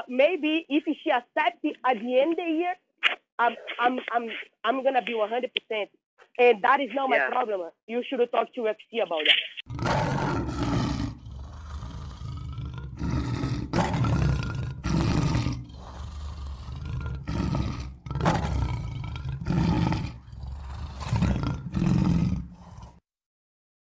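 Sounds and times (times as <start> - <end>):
lion roaring and grunting: 9.7 - 23.0.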